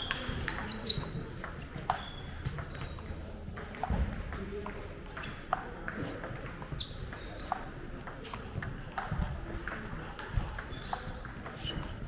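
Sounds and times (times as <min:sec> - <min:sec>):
shoes squeaking on floor: 0:00.0 - 0:03.1, 0:06.7 - 0:09.4, 0:10.2 - 0:12.0
background chatter: 0:00.0 - 0:12.0.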